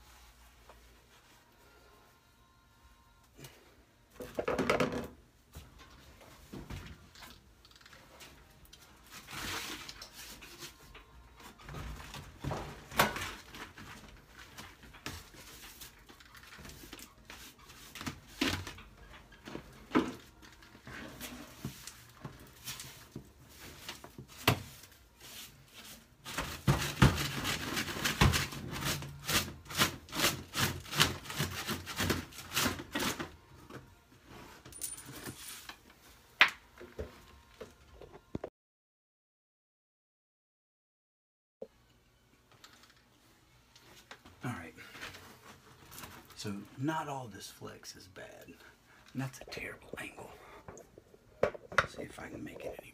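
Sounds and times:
hand broom sweeping tile floor: 21.2 - 33.1.

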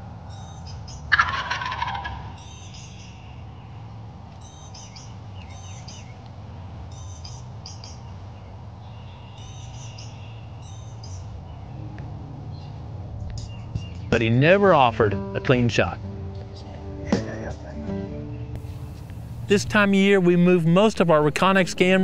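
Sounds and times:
small birds chirping: 0.3 - 1.1, 2.0 - 11.8, 12.5 - 14.3, 18.2 - 22.0
turkey gobbling: 0.9 - 3.2.

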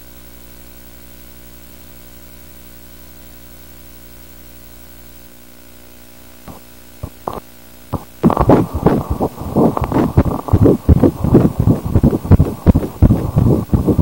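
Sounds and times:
steady low hum: 0.0 - 14.0
scattered clicks: 6.5 - 7.4
rapid whooshing fetal heartbeat: 6.5 - 14.0.

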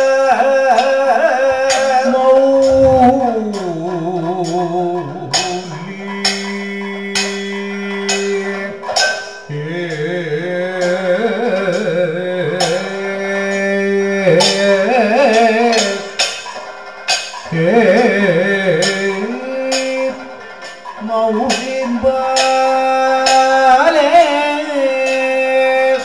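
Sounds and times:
steady drone: 2.6 - 3.5
man singing ornamented melody: 9.5 - 16.0, 17.5 - 20.2, 21.0 - 26.0.

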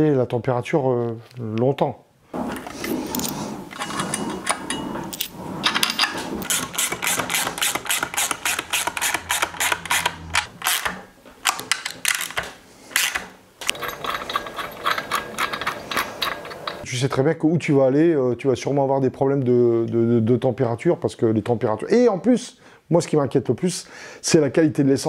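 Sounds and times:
hand tool clicking: 6.4 - 16.8.

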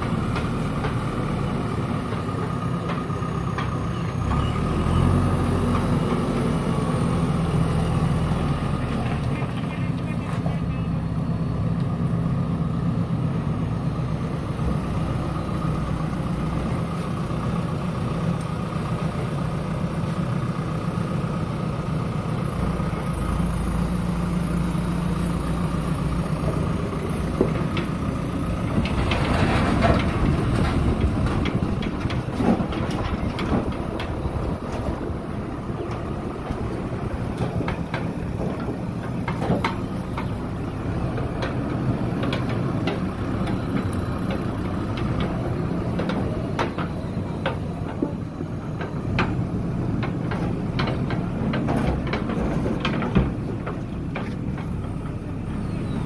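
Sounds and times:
diesel engine running: 0.0 - 56.0
knocks and clatter: 26.4 - 55.2.

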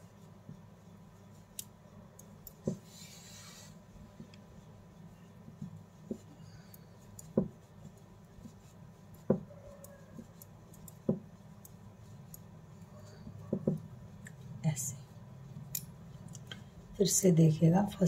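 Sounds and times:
low steady hum: 0.0 - 18.0
metal knitting needles clicking: 9.6 - 12.5, 15.6 - 16.6.

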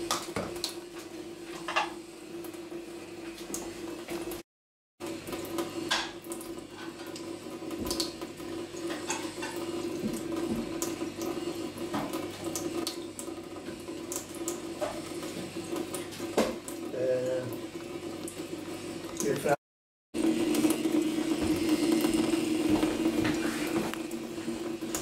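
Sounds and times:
tap running into metal sink: 0.0 - 2.0, 5.3 - 17.6, 20.5 - 25.0.

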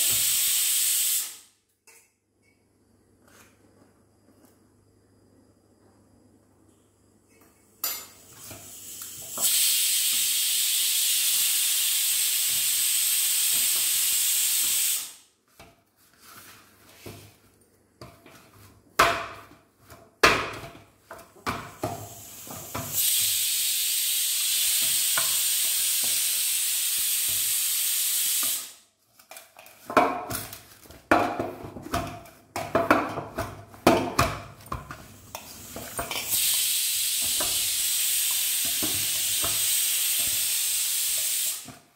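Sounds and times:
steady hiss: 7.9 - 15.3, 21.6 - 28.9, 35.1 - 41.8.

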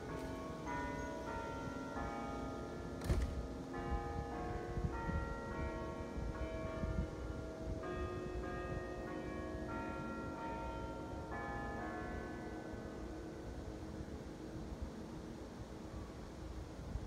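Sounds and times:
bells ringing: 0.0 - 13.0.

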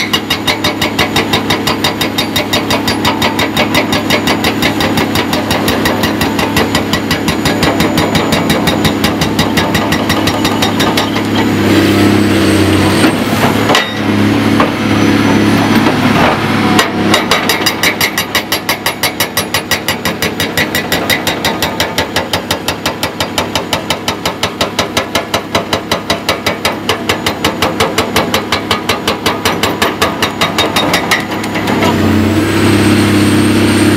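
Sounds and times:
hydraulic breaker pounding rock: 0.0 - 12.2, 12.8 - 32.2
diesel engine running: 0.0 - 33.9.

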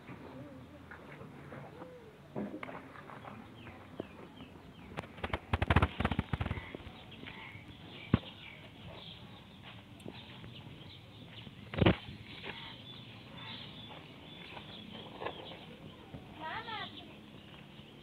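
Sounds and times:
small birds chirping: 3.0 - 18.0.

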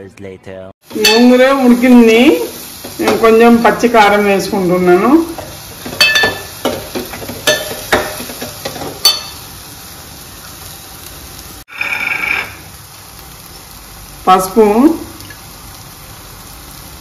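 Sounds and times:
low sizzle: 0.8 - 17.0
spoon knocking and scraping pot: 5.4 - 9.4.

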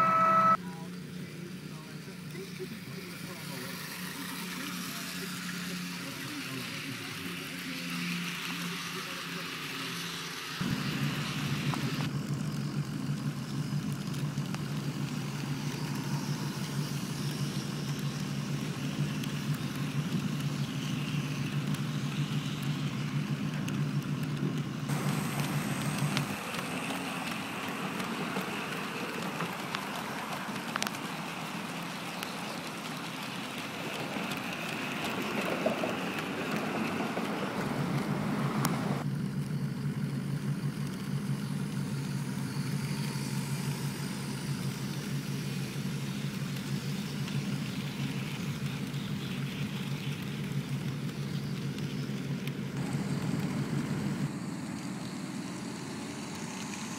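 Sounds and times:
outdoor noise hiss: 0.6 - 56.9
model train motor hum: 2.6 - 39.1.

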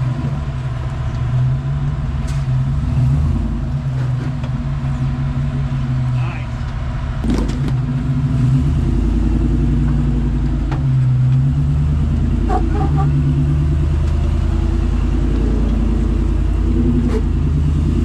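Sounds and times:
engine pulling at low revs: 0.0 - 18.0.

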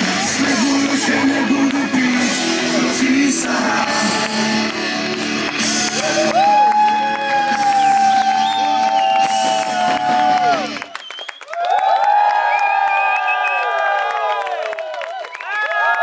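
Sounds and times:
person singing: 0.0 - 6.5
drums: 0.0 - 10.9
electric guitars: 0.0 - 10.9.

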